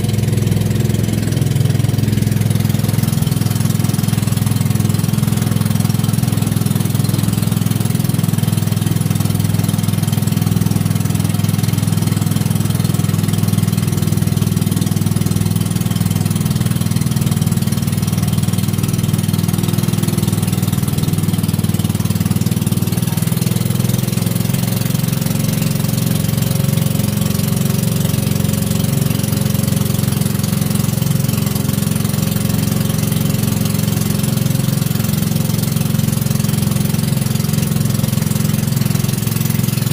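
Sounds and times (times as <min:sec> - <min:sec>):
boat engine running: 0:00.0 - 0:39.9.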